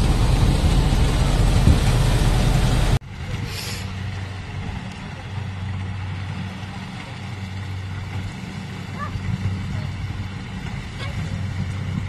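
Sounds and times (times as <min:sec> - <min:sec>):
distant harvester engine hum: 0:00.0 - 0:12.0
brief hiss: 0:03.4 - 0:03.9.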